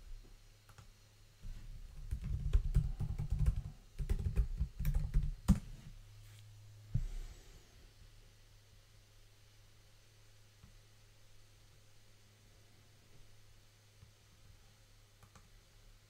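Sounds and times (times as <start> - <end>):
computer keyboard typing: 1.9 - 5.7, 15.2 - 15.5.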